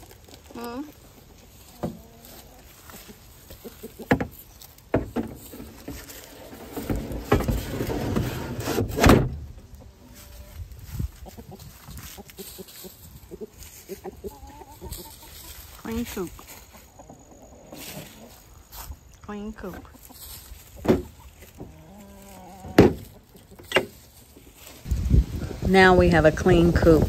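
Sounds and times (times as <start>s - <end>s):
plastic scraping rustle: 0.0s - 9.5s.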